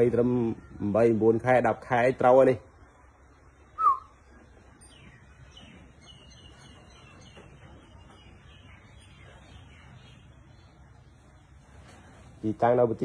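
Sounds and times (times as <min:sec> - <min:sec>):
faint high bird chirps: 0:03.6 - 0:11.2.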